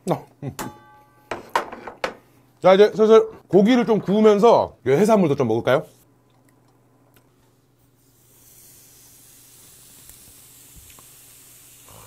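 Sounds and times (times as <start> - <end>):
steak sizzling on a grill plate: 8.3 - 12.0.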